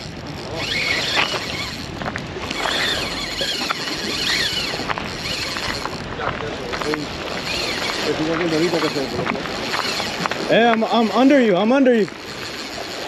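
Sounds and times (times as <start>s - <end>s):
wind noise on microphone: 0.0s - 11.1s
surf: 0.0s - 13.0s.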